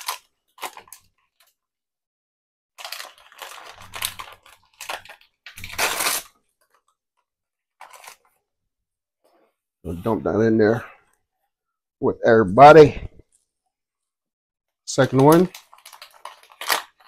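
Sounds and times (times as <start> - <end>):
bag crinkling and tearing: 0.0 - 1.5, 2.8 - 6.4, 7.8 - 8.3, 15.0 - 17.0.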